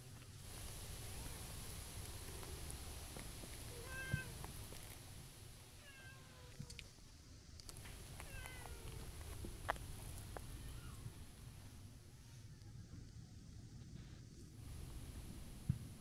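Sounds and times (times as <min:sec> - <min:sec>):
cat meowing: 0:03.7 - 0:04.3, 0:05.8 - 0:06.6, 0:08.2 - 0:09.0.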